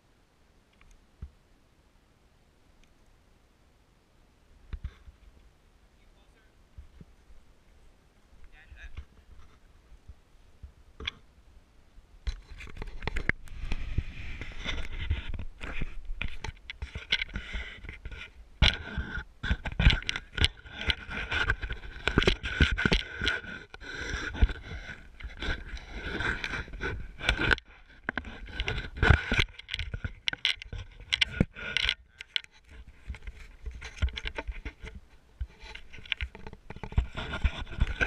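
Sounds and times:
camera pole handling scrapes and knocks: 12.3s - 38.0s.

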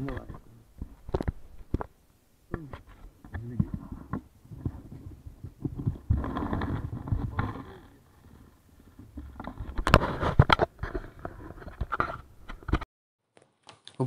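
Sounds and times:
microphone handling rustle: 2.6s - 12.8s.

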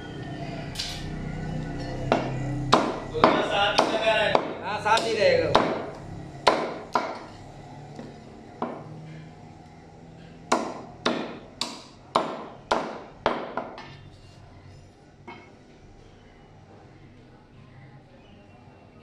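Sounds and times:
cleaver chopping on wooden block: 2.1s - 7.3s, 10.5s - 13.8s.

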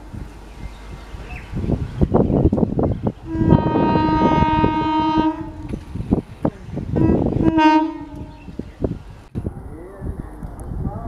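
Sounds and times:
train horn blasts: 3.2s - 5.8s, 6.9s - 8.6s.

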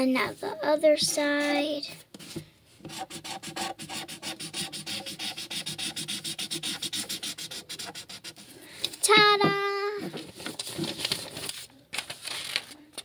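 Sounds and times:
marker scribbling on paper: 2.2s - 8.5s.

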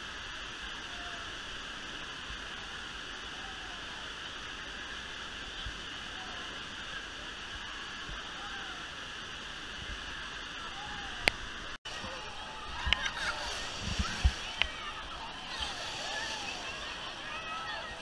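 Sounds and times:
waves breaking in shallow water: 0.0s - 18.0s
distant voices of bathers: 11.9s - 18.0s.

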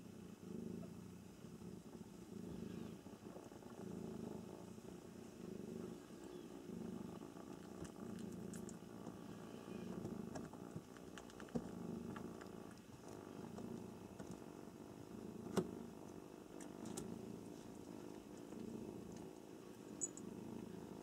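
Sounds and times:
cat purring: 0.0s - 21.0s
faint clicks: 9.9s - 12.9s.

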